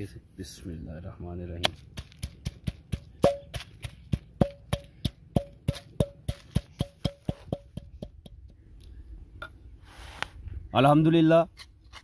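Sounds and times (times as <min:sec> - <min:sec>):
pestle pounding in clay mortar: 0:01.6 - 0:08.6.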